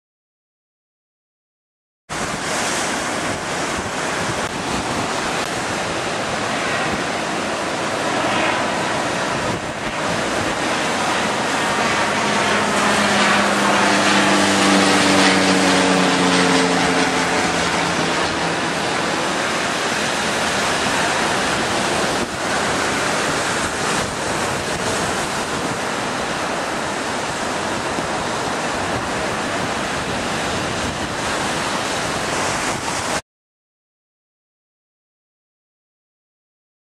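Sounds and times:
heavy surf breaking: 0:02.1 - 0:33.2
wind buffeting microphone: 0:02.1 - 0:33.2
engine passing by: 0:02.4 - 0:28.9.

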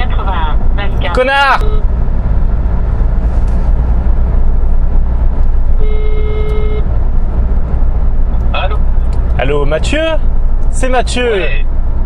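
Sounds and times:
car cabin road and engine noise: 0:00.0 - 0:12.0
phone ringing tone: 0:01.6 - 0:01.9, 0:05.8 - 0:06.8.

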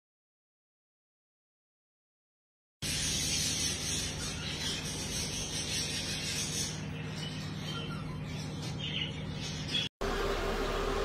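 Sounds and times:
budgerigars chirping: 0:02.8 - 0:09.9.

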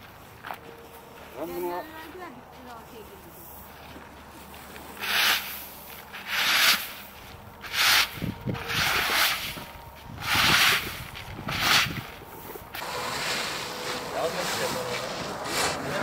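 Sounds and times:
rice raked across plastic tarp: 0:04.9 - 0:09.6, 0:10.2 - 0:12.0, 0:12.8 - 0:16.0.

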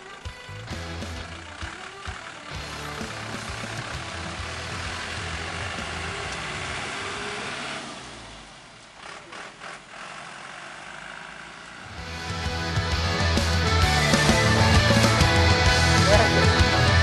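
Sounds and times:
music: 0:00.0 - 0:06.8, 0:11.9 - 0:17.0
diesel truck engine driving off: 0:00.0 - 0:17.0.

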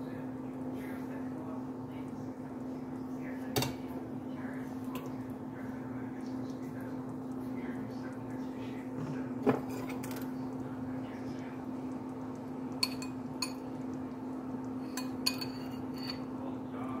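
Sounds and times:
steady low hum: 0:00.0 - 0:17.0
metal spoon clinking on bowl: 0:12.8 - 0:13.6, 0:14.9 - 0:16.2.

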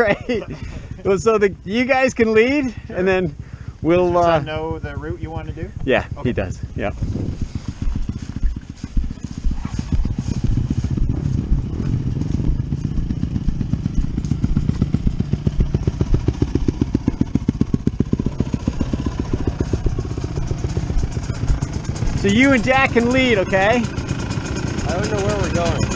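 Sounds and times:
dirt bike engine at low revs: 0:00.0 - 0:25.9.

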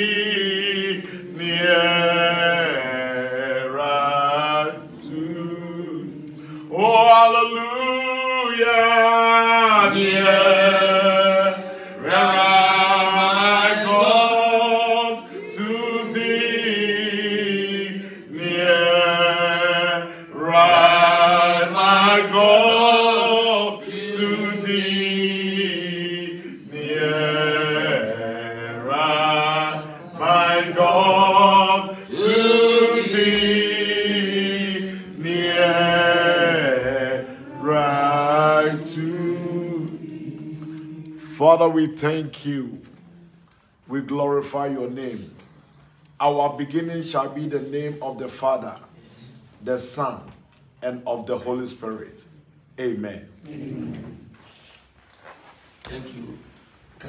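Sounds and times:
man singing a hymn: 0:00.0 - 0:43.0.

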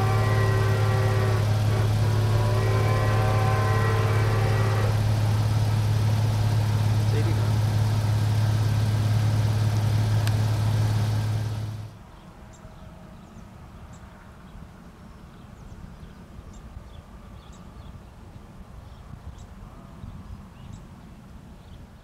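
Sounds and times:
loud low hum: 0:00.0 - 0:12.0.

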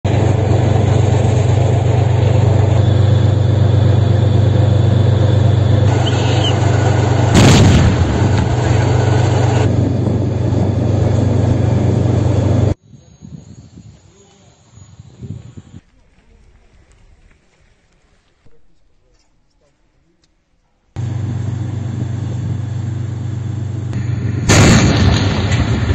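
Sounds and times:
loud blast: 0:00.1 - 0:12.3, 0:24.0 - 0:25.9
low rumble: 0:00.1 - 0:12.8.

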